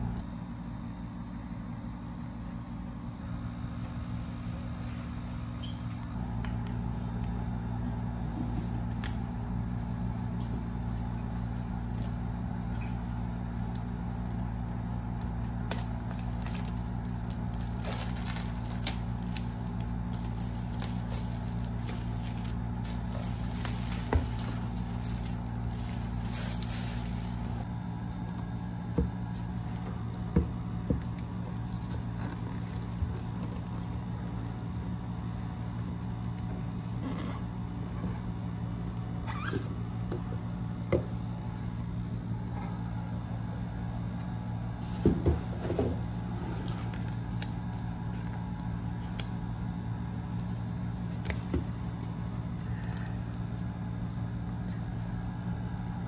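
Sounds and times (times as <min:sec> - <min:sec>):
plastic shrink wrap crinkling: 0:13.7 - 0:27.7.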